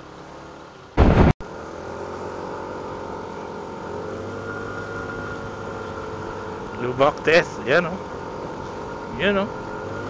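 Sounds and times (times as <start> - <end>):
loud burst of noise: 1.0 - 1.4.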